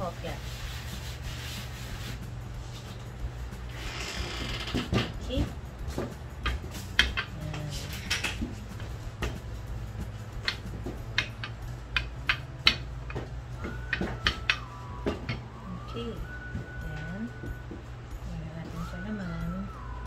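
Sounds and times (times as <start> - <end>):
utensils clicking on a work surface: 6.4 - 8.6, 10.4 - 15.4.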